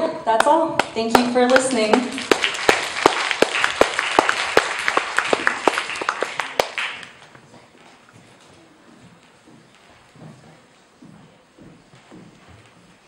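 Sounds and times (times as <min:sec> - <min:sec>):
audience applauding: 0:01.1 - 0:07.4.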